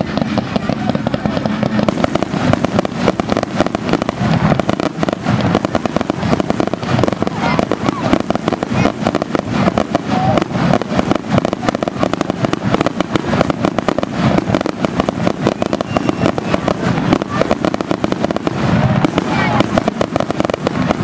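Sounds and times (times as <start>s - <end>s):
fireworks bangs and crackles: 0.0s - 21.0s.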